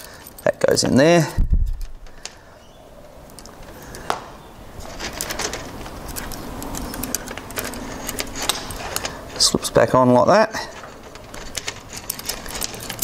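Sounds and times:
metal fittings clicking: 4.8 - 9.5.

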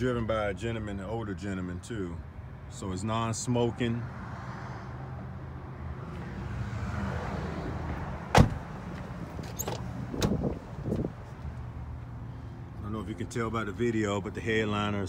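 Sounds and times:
car door opening clicks: 8.3 - 11.1
car door shutting: 8.3 - 11.1.

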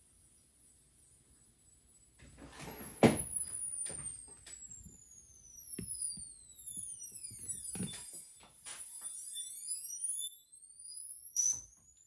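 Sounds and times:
tesla coil whistle: 3.2 - 12.0.

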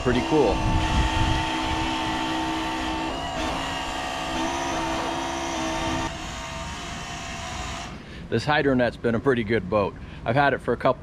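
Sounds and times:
electric motors whining: 0.0 - 8.0.

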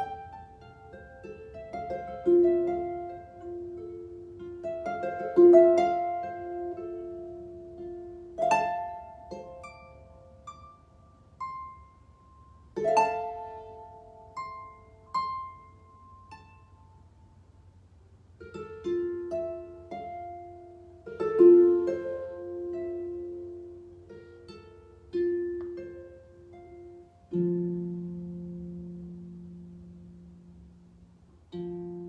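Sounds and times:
harp played slowly: 0.0 - 32.0.

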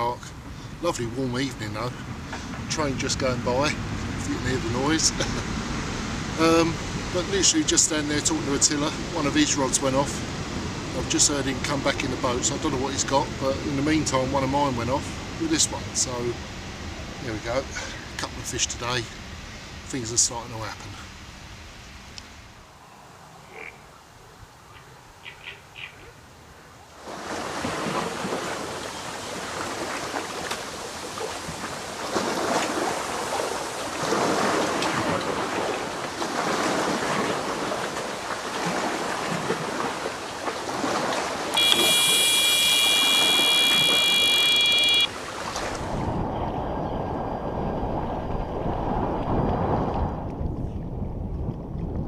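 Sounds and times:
waves lapping: 0.0 - 21.2, 26.9 - 46.2
wind: 0.0 - 52.0
electronic bite alarm tone: 41.6 - 45.1.

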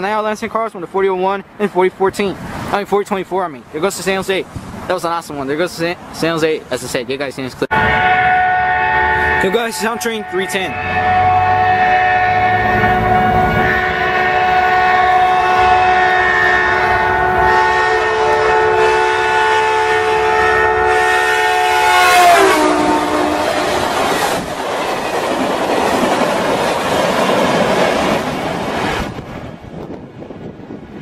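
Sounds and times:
locomotive air horn: 7.7 - 24.3
train cars clattering on rails: 23.8 - 30.5.

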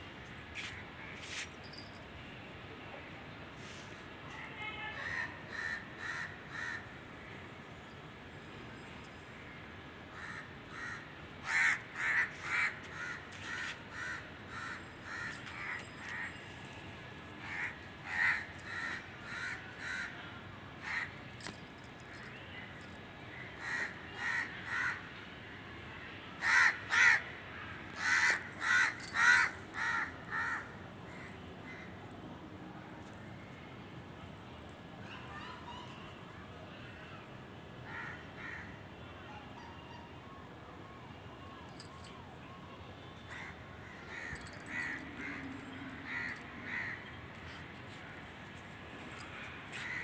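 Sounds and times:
crow cawing: 5.0 - 6.9, 10.1 - 16.2, 26.4 - 27.2, 28.0 - 31.9.

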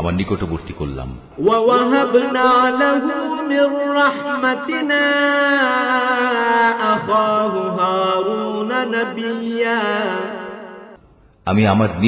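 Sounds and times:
man chanting melodically: 1.3 - 10.8.

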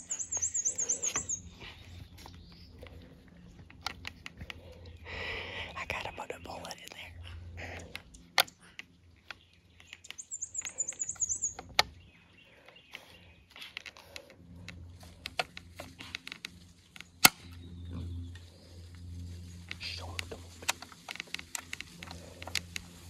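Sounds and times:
small bird trilling: 0.0 - 1.5, 9.9 - 11.7
rifle handling clicks and rustles: 13.6 - 17.6, 19.0 - 23.0
sharp rifle click: 15.3 - 17.6.

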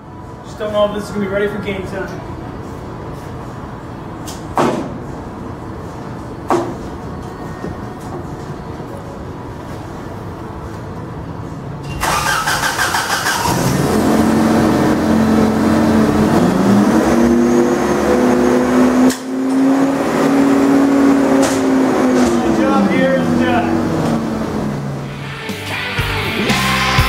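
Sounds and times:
ice resurfacer engine revving: 12.0 - 27.0.

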